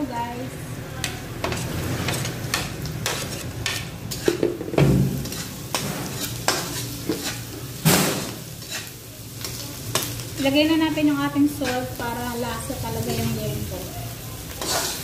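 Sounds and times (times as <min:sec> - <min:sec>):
meat sizzling in hot oil: 0:01.2 - 0:15.0
spatula scraping a wok: 0:01.4 - 0:13.6, 0:14.4 - 0:15.0.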